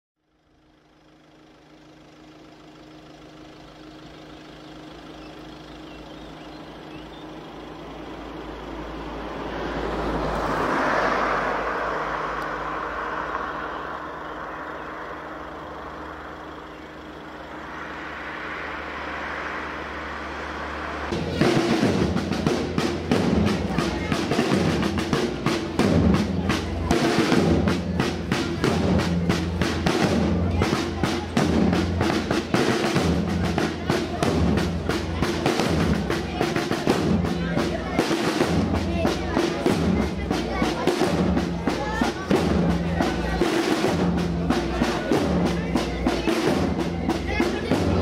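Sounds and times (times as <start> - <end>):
rushing noise with low hum: 7.3 - 27.8
snare drums beating rapidly: 19.9 - 48.0.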